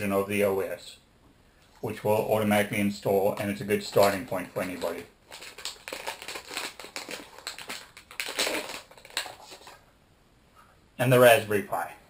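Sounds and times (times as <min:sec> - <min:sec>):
plastic bag crinkling: 0:03.0 - 0:09.8.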